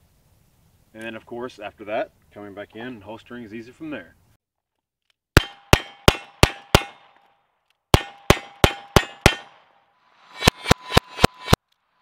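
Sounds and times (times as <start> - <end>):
steel targets ringing: 8.0 - 9.6.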